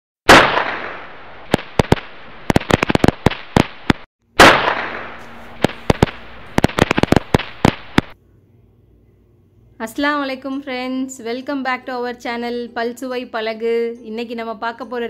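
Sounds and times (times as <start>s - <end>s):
firecrackers crackling pops: 0.3s - 8.2s
firecracker bang with hiss: 4.4s - 8.2s.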